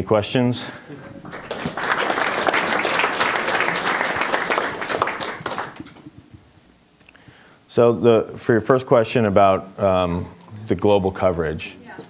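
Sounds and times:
audience applauding: 1.0s - 6.0s.

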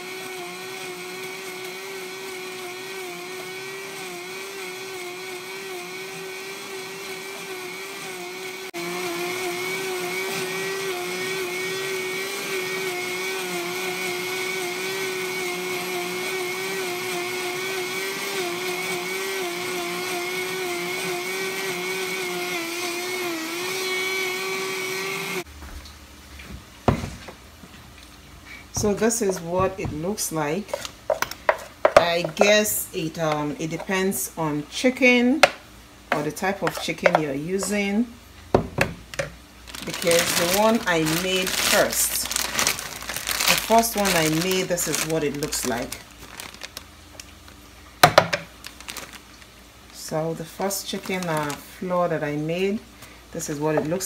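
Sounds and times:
blender motor running: 0.0s - 25.5s, 39.7s - 46.7s.

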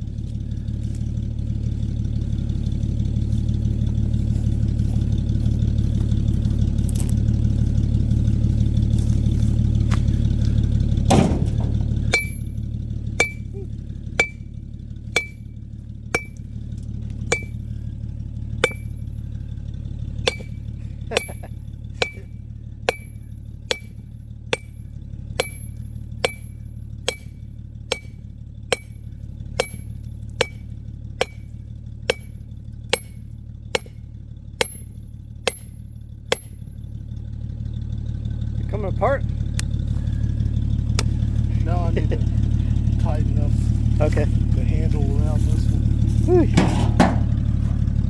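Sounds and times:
sledgehammer striking a steel chisel: 12.0s - 12.6s, 13.2s - 14.5s, 15.1s - 15.5s, 16.1s - 16.5s, 17.3s - 17.7s, 18.6s - 19.1s, 20.2s - 36.7s.

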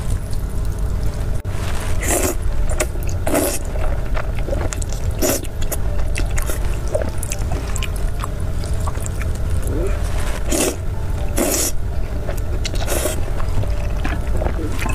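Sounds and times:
low rumble: 0.0s - 14.9s
wet chewing: 0.0s - 14.9s
noodle slurping: 1.9s - 8.0s, 8.8s - 10.8s, 12.6s - 14.9s.

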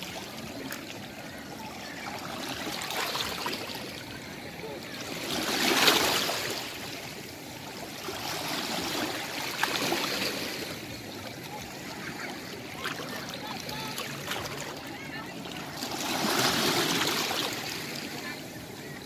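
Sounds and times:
seawater washing among rocks: 8.0s - 19.0s.

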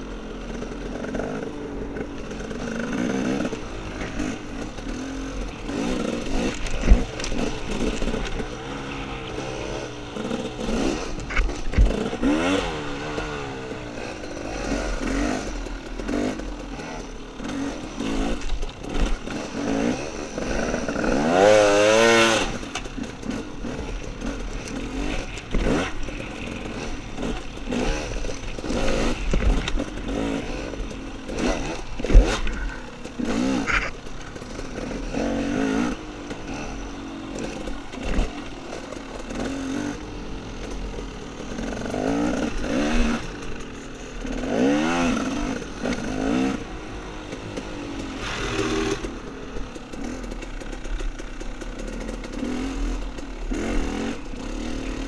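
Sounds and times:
dirt bike engine revving: 0.0s - 55.0s
small clatters: 22.4s - 35.1s.

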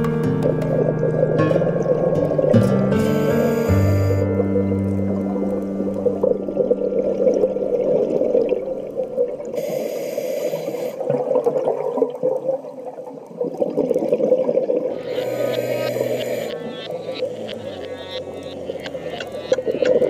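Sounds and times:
muffled underwater bubbling rush: 0.4s - 20.0s.

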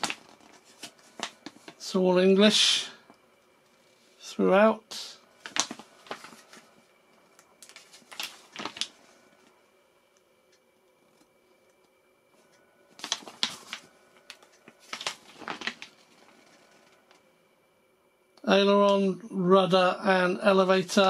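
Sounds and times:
paper pages turning: 0.0s - 1.8s, 5.4s - 6.8s, 7.4s - 9.5s, 12.9s - 17.0s.

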